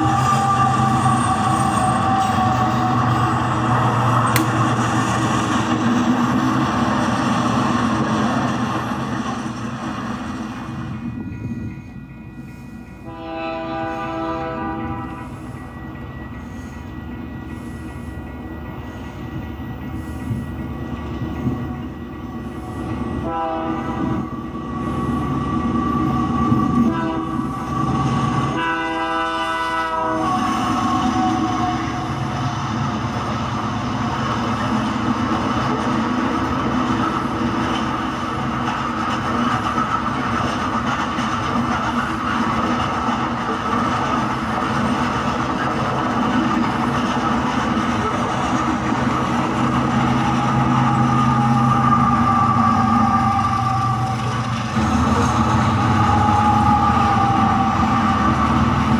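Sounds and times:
train horn blasts: 0:00.0 - 0:03.6, 0:13.0 - 0:15.5, 0:23.2 - 0:24.3, 0:26.7 - 0:32.4, 0:50.2 - 0:54.5
train cars rumbling and clattering: 0:00.0 - 0:58.9.

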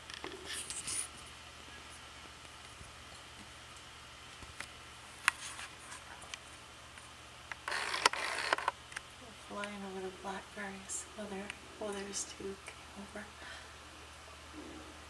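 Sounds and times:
faint low hum: 0:00.0 - 0:15.0
camera handling rustling: 0:07.6 - 0:08.8.

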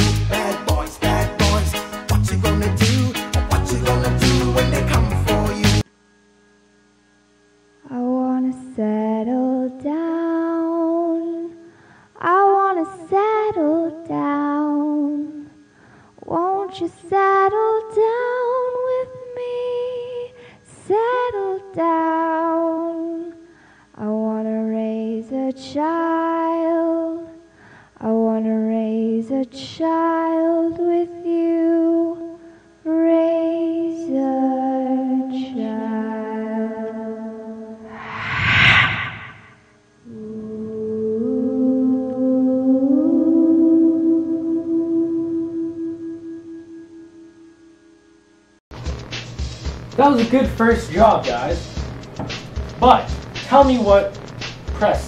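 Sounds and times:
woman singing unaccompanied: 0:07.8 - 0:11.6, 0:12.2 - 0:15.6, 0:16.2 - 0:23.4, 0:24.0 - 0:27.4, 0:28.0 - 0:37.8, 0:40.1 - 0:47.0.

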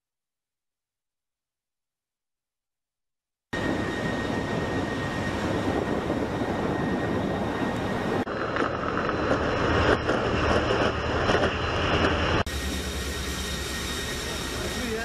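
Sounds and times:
aircraft engines droning overhead: 0:03.6 - 0:15.0.

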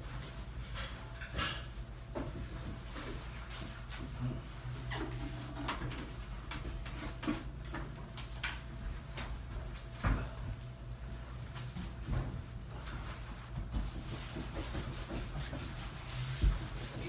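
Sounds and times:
low room hum: 0:00.0 - 0:17.0
wiping rubs: 0:11.1 - 0:17.0.

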